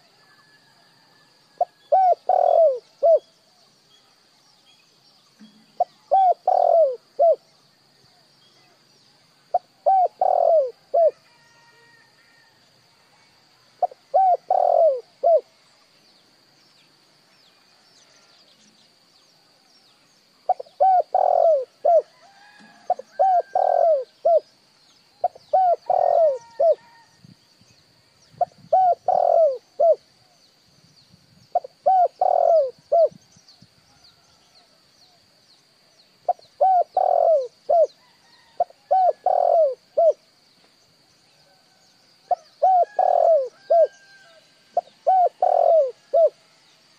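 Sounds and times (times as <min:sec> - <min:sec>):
dove cooing: 0:01.6 - 0:03.3, 0:05.8 - 0:07.4, 0:09.5 - 0:11.2, 0:13.8 - 0:15.5, 0:20.5 - 0:24.5, 0:25.2 - 0:27.1, 0:28.4 - 0:30.0, 0:31.6 - 0:33.2, 0:36.3 - 0:40.2, 0:42.3 - 0:46.4.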